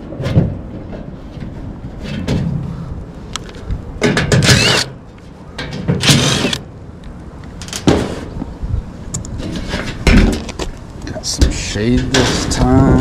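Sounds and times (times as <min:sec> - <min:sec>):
cordless drill whirring: 0:04.4 - 0:04.9, 0:06.0 - 0:06.6.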